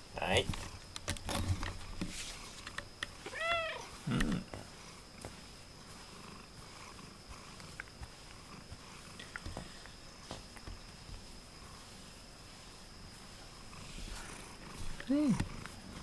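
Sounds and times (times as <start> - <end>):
cat meowing: 3.3 - 3.9
cat purring: 5.8 - 10.0, 10.8 - 16.0.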